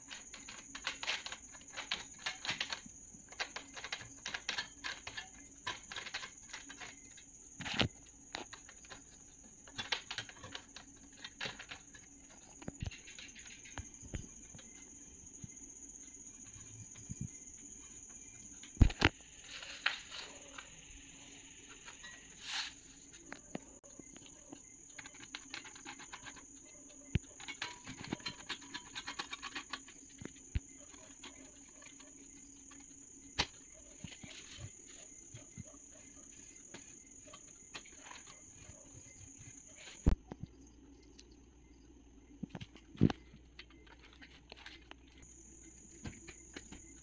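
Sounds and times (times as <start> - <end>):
plastic clicks and knocks: 0.0 - 14.8, 18.6 - 19.2.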